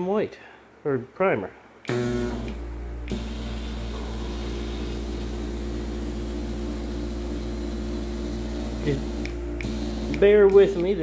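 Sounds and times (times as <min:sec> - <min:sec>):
low steady hum: 0:00.0 - 0:11.0
powder-coating gun hissing: 0:03.1 - 0:11.0.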